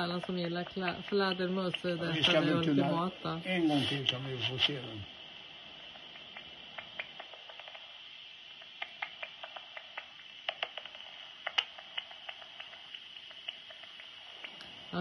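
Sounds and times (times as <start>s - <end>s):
bat detector clicks: 0.0s - 2.4s, 5.9s - 14.8s
bat detector hiss: 0.0s - 15.0s.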